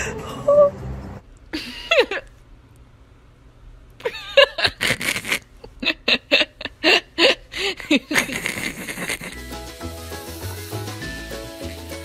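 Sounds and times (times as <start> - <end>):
person laughing: 1.5 - 2.3, 4.0 - 9.6.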